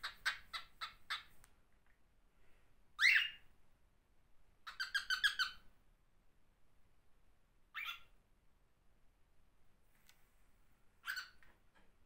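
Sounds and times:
cockatiel chirping and calling: 0:00.0 - 0:01.3, 0:03.0 - 0:03.5, 0:04.6 - 0:05.7, 0:07.7 - 0:08.2, 0:11.0 - 0:11.5.

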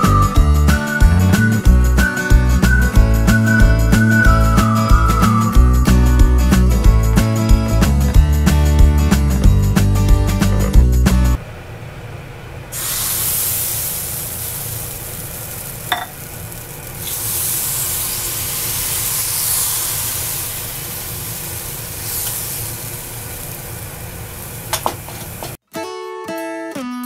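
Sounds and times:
strummed acoustic guitar music: 0:00.0 - 0:11.4, 0:25.7 - 0:27.0
batter sizzling in a pan: 0:12.8 - 0:25.5.

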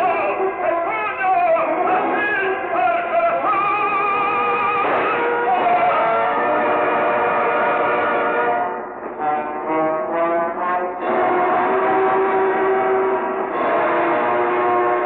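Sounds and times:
man singing operatically: 0:00.0 - 0:08.3
orchestral music: 0:00.0 - 0:15.0.

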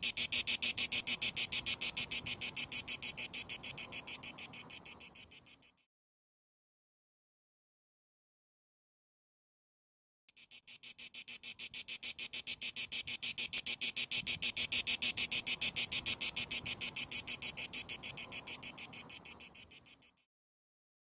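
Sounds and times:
cicada buzzing: 0:00.0 - 0:05.8, 0:10.3 - 0:20.3.

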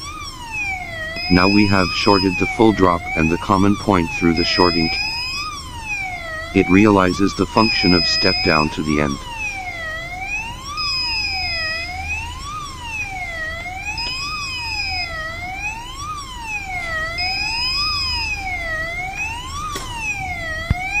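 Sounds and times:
alarm wailing like a siren: 0:00.0 - 0:21.0
steady beep: 0:01.1 - 0:05.4, 0:06.3 - 0:09.2.

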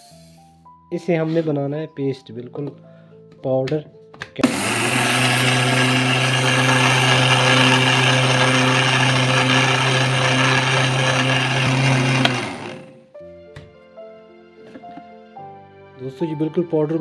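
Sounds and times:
sugar whirling in jar: 0:04.4 - 0:12.9
mixer grinder motor hum: 0:04.4 - 0:13.0.

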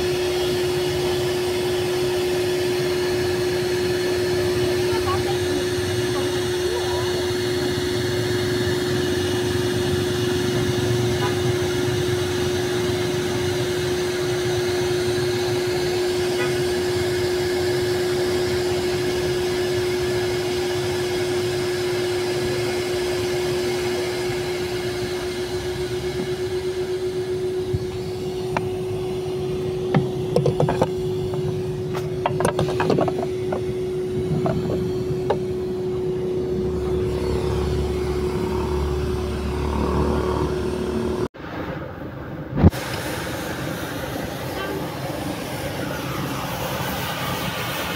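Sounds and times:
vacuum cleaner motor running: 0:00.0 - 0:41.3, 0:42.6 - 0:47.9
knocks and clicks: 0:29.9 - 0:33.6.

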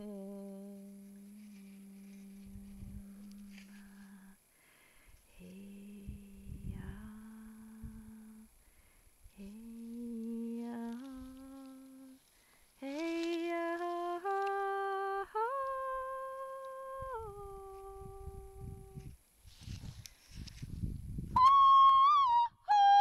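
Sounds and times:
woman singing held notes: 0:00.0 - 0:04.4, 0:05.3 - 0:08.5, 0:09.3 - 0:19.2.

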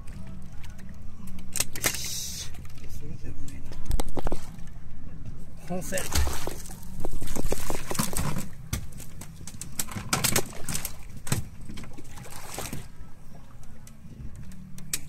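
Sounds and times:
low steady hum: 0:00.0 - 0:15.0
water splashing against boat hull: 0:05.8 - 0:13.0.

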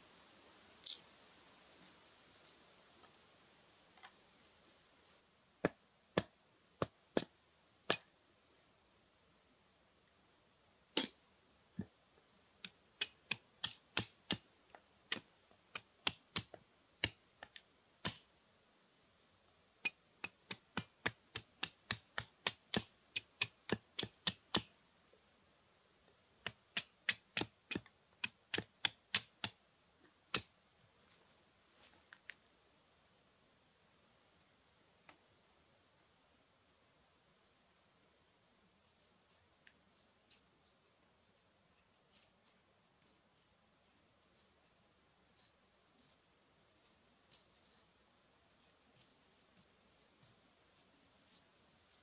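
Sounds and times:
wooden baton knocking on hatchet: 0:20.2 - 0:24.7, 0:26.5 - 0:29.6.

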